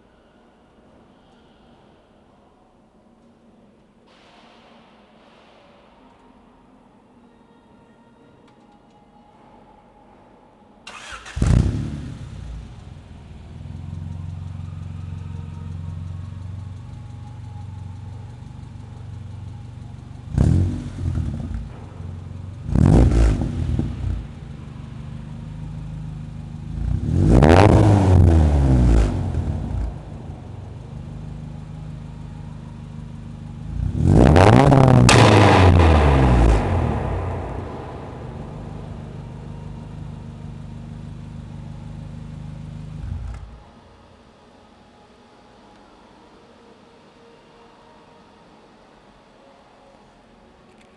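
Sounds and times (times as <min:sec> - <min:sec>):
car engine idling and revving: 0:11.0 - 0:43.9.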